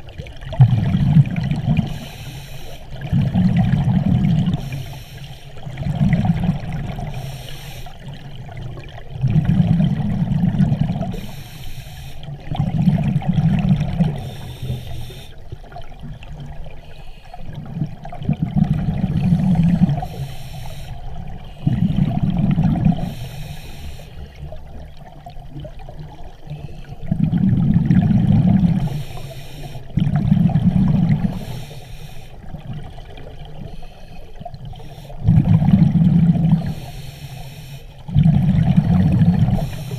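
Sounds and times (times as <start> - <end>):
exhaled bubbles rumbling: 0.0 - 2.2, 2.8 - 4.9, 5.5 - 11.4, 12.2 - 16.8, 17.4 - 20.2, 20.9 - 23.4, 24.2 - 31.7, 32.4 - 37.0, 38.0 - 39.9
regulator inhale hiss: 1.8 - 3.0, 4.4 - 5.7, 7.0 - 8.1, 11.1 - 12.4, 14.1 - 15.4, 16.8 - 17.6, 19.2 - 21.9, 23.0 - 24.5, 28.8 - 30.0, 31.2 - 32.5, 33.6 - 35.3, 36.5 - 38.1, 39.4 - 39.9.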